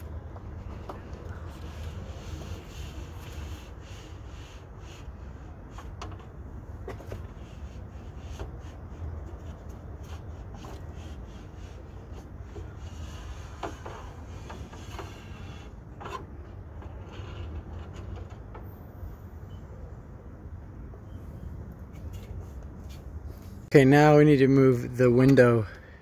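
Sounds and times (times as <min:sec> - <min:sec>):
rubbing and scraping: 0:00.0 - 0:18.6.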